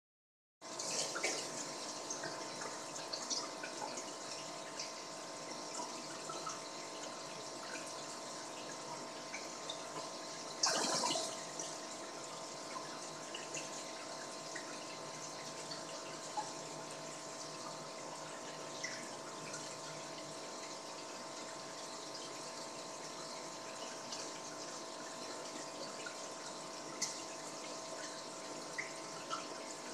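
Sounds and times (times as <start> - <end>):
bubbles popping at water surface: 10.6 - 11.5.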